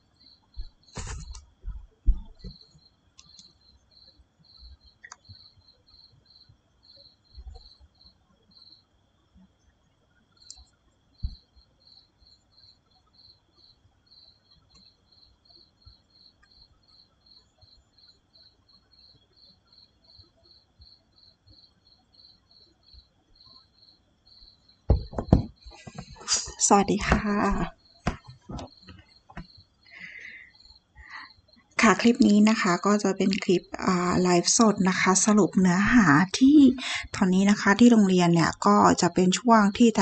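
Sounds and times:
insect chirping: 0.0s - 38.2s
loud thumps: 0.6s - 2.6s, 24.9s - 29.5s.

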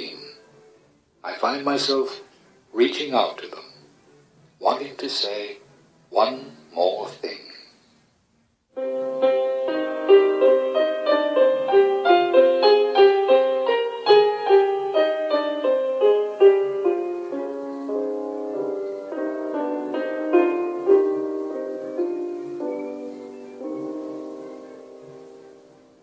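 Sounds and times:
solo piano melody: 8.7s - 26.0s.

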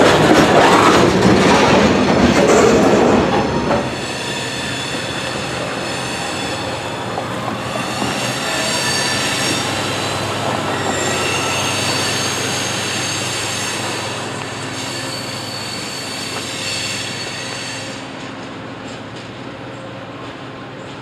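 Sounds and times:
train rumbling: 0.0s - 21.0s
train wheels squealing: 3.6s - 20.0s.

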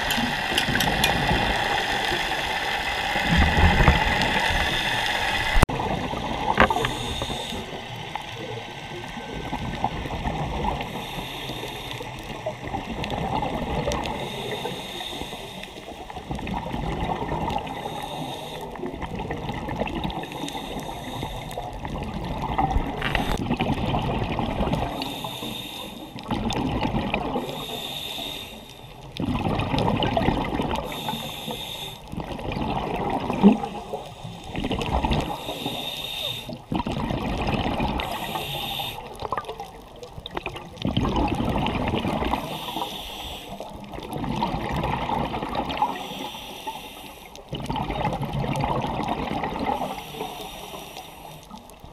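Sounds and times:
exhaled bubbles rumbling underwater: 0.0s - 51.9s
regulator hiss on inhale: 6.6s - 8.5s, 10.8s - 12.6s, 14.0s - 16.2s, 17.6s - 18.9s, 20.2s - 21.8s, 23.0s - 23.4s, 24.8s - 26.3s, 27.4s - 29.1s, 30.8s - 32.2s, 33.7s - 34.6s, 35.2s - 36.7s, 38.0s - 39.2s, 42.3s - 44.0s, 45.9s - 47.5s, 49.6s - 51.8s.

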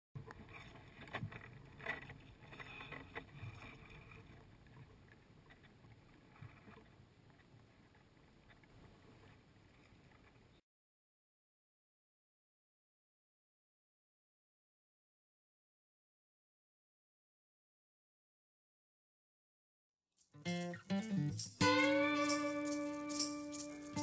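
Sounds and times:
faint outdoor rustle: 0.3s - 10.6s.

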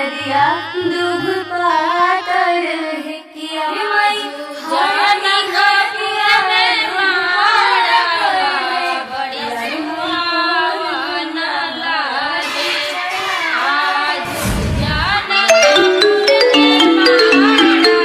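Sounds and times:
high voice singing: 14.2s - 18.0s
deep booming sound effect: 14.3s - 15.2s
instrumental backing: 15.3s - 18.0s.

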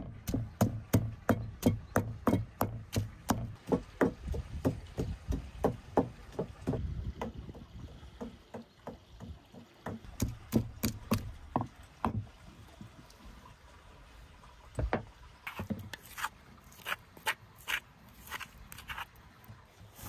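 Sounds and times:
wooden pestle pounding in mortar: 0.0s - 7.5s.

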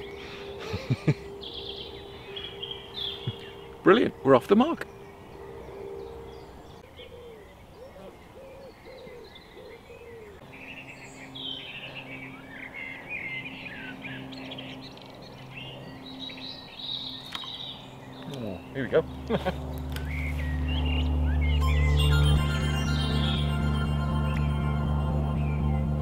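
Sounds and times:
bird cooing notes: 0.0s - 10.4s
birds chirping and singing: 0.0s - 26.0s.

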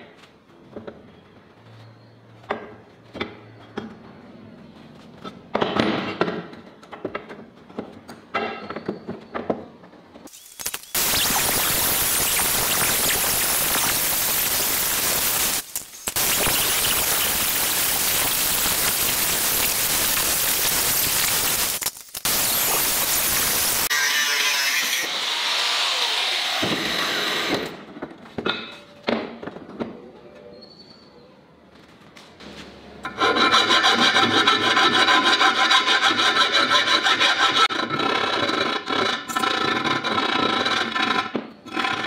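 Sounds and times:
angle grinder cutting steel: 10.3s - 27.7s, 33.1s - 41.2s.

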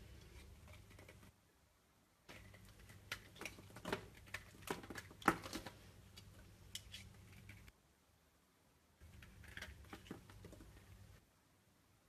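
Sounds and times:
knife scraping soap: 9.0s - 10.8s.

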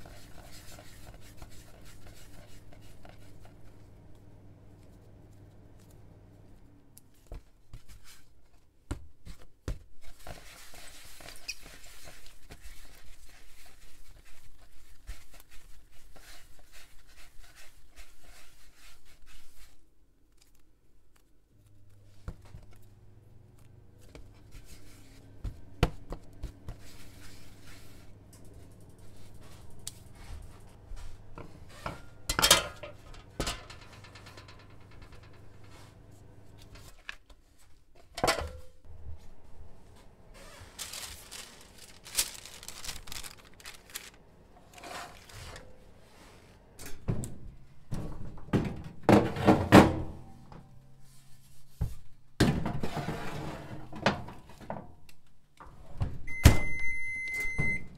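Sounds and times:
hands rubbing dough on board: 0.0s - 3.8s, 9.2s - 19.9s, 24.1s - 31.2s
metal baking tray clattering: 31.7s - 36.0s.

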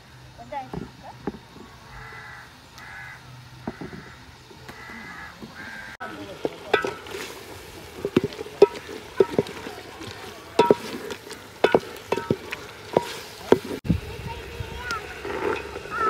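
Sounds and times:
crows cawing: 1.8s - 6.0s
spatula scraping metal pot: 6.4s - 13.8s, 15.2s - 16.0s.

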